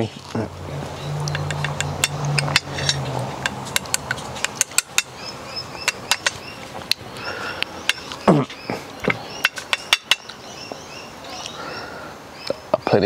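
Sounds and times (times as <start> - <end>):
chopsticks tapping ceramic dish: 1.3 - 5.2, 5.8 - 7.0, 9.1 - 10.4.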